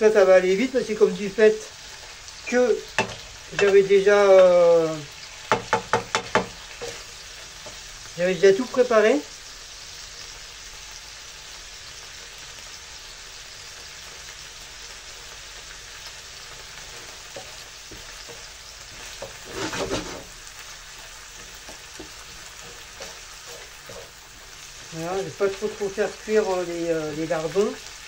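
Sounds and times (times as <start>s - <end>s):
bacon and onions sizzling in a pan: 0.0s - 28.0s
wooden spatula stirring: 5.5s - 7.9s, 16.5s - 26.4s.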